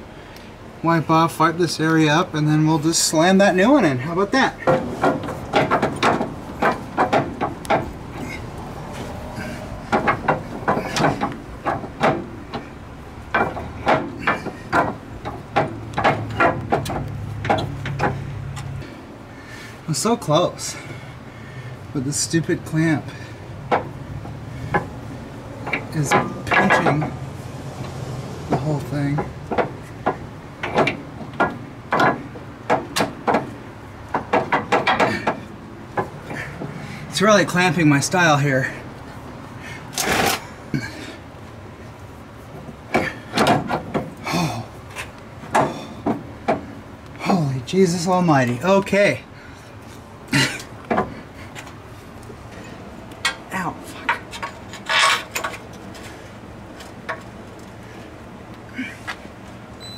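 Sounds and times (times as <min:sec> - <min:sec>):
metal tools clicking and knocking: 0:52.6 - 0:55.9.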